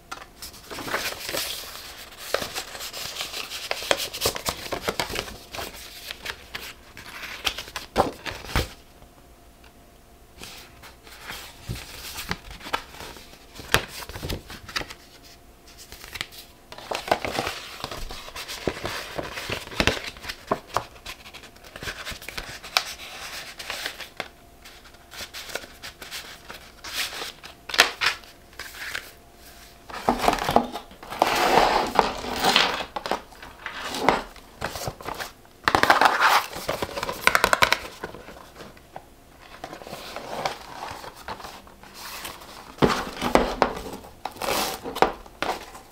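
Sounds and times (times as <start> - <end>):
paper rustling and crinkling: 0.1 - 8.8, 10.4 - 45.9.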